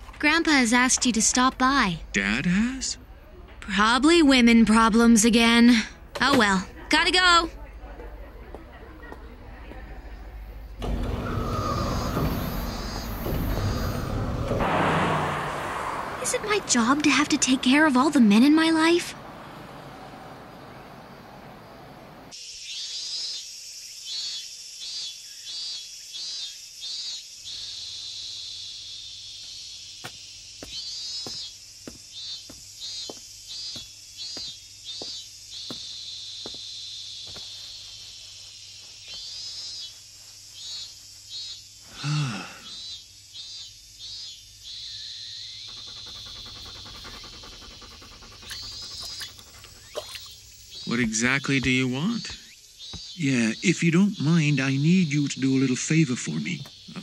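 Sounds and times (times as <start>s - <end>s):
cicadas droning: 0.0s - 57.0s
pulsing insect call: 10.2s - 57.0s
falling vocal sound: 42.0s - 42.7s
dog panting: 45.7s - 50.5s.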